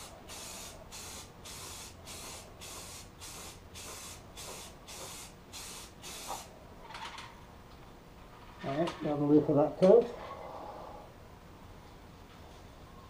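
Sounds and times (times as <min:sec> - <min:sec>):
aerosol can spraying bursts: 0:00.0 - 0:06.5.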